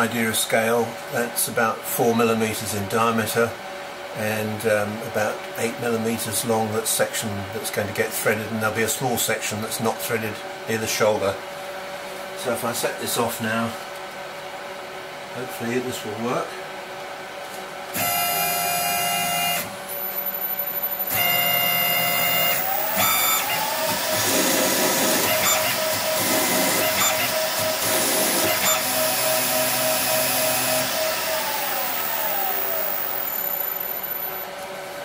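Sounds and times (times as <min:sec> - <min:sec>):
lathe spindle motor whine: 0:18.0 - 0:34.5
stepper slides whining: 0:19.9 - 0:29.0, 0:30.5 - 0:34.4
lathe tool cutting thread: 0:21.1 - 0:34.4.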